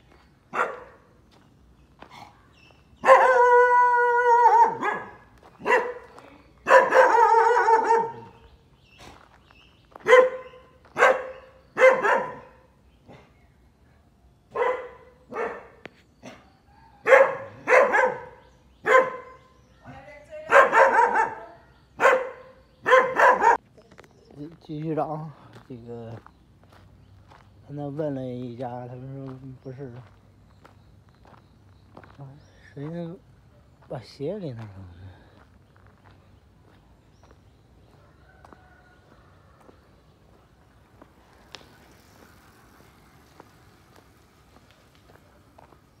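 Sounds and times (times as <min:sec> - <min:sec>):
dog barking: 0:00.5 - 0:01.1, 0:03.0 - 0:08.4, 0:10.0 - 0:13.3, 0:14.5 - 0:19.5, 0:20.5 - 0:23.6.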